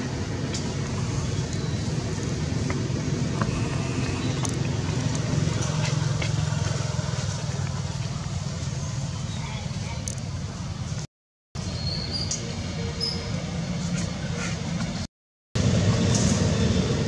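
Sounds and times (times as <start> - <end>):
low engine hum: 0.0 - 11.1, 13.4 - 17.0.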